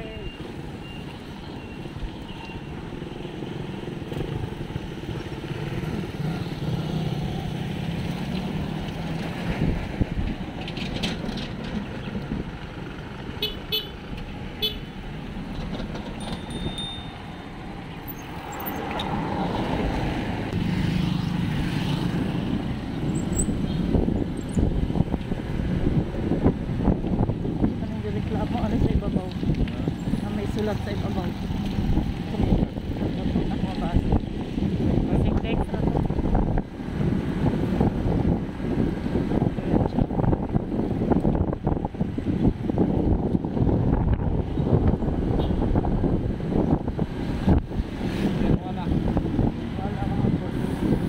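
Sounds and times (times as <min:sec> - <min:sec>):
tricycle engines: 0:00.0 - 0:45.0, 0:46.5 - 0:51.0
motorcycle passing: 0:02.9 - 0:10.1, 0:15.9 - 0:26.9
car passing: 0:16.2 - 0:24.1.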